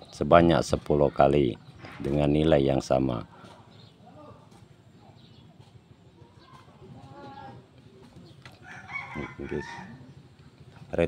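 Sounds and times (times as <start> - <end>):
rooster crowing: 8.6 - 10.1.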